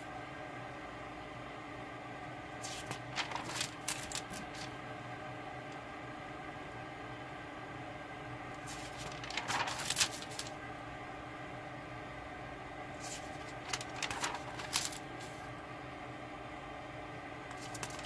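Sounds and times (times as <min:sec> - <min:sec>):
notebook pages turning: 0:02.6 - 0:04.7, 0:08.6 - 0:10.5, 0:13.0 - 0:15.4, 0:17.5 - 0:18.0.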